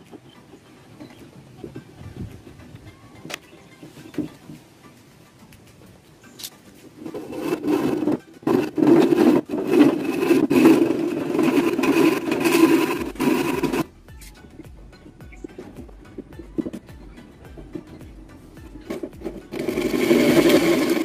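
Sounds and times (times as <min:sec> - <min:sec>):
hand saw cutting wood: 0:07.0 - 0:13.9, 0:18.8 - 0:21.0.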